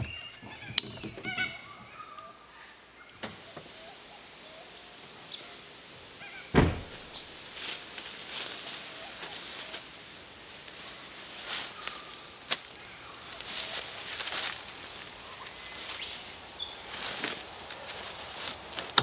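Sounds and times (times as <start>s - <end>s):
high insect drone: 0.0s - 19.0s
footsteps on dry leaves: 6.8s - 19.0s.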